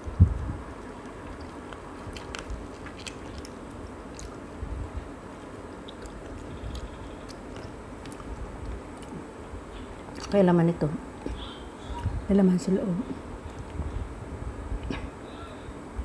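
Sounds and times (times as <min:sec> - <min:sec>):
chewing and sucking: 0:00.6 - 0:10.4.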